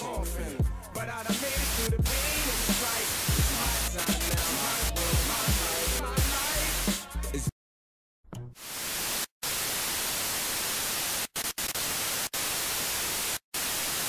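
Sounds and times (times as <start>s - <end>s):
television static hiss: 8.6s - 14.0s.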